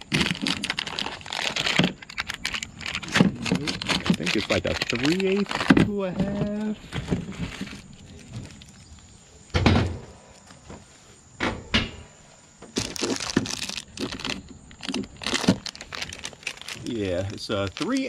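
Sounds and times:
metal fittings rustling and clattering: 0.1 - 9.2.

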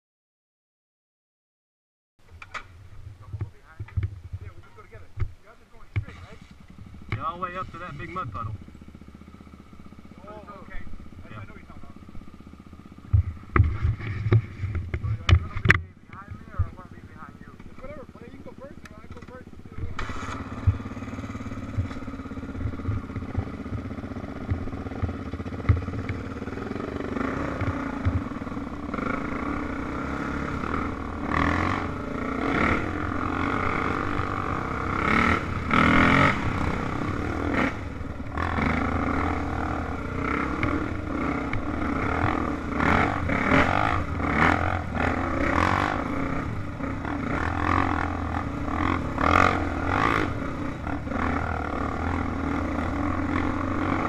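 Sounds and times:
dirt bike engine revving: 2.5 - 54.0
sharp knocks: 13.1 - 16.8.

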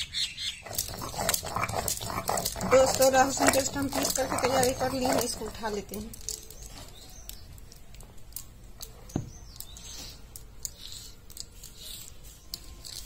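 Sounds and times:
fingers scraping stone slab: 0.6 - 7.2.

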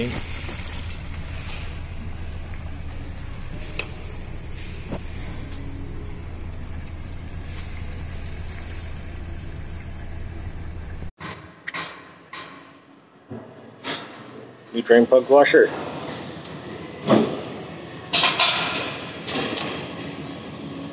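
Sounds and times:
low hum: 0.0 - 11.1.

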